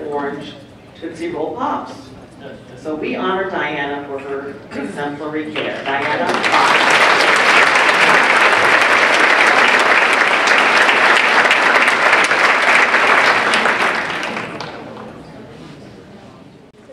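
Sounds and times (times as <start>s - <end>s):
audience applauding: 5.6s - 15.1s.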